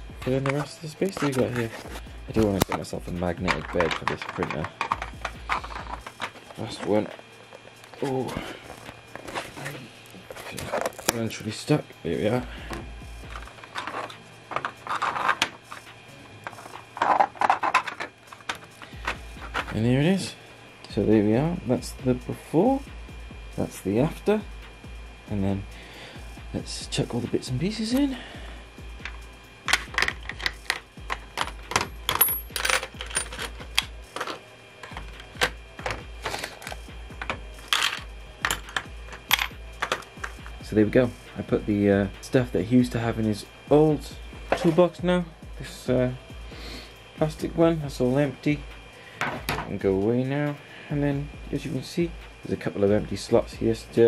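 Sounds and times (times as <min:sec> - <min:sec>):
plastic boxes scraping and clacking: 0:00.4 - 0:06.6, 0:13.5 - 0:15.5
metal tools clicking into plastic: 0:03.5 - 0:06.3.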